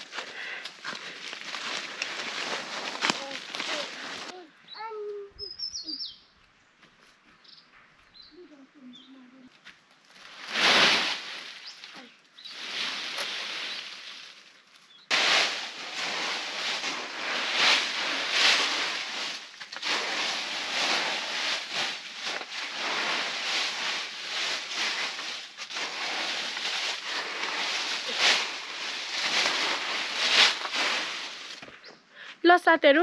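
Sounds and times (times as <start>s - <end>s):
dry leaves rustling and crackling: 0.0s - 4.4s, 10.0s - 31.9s.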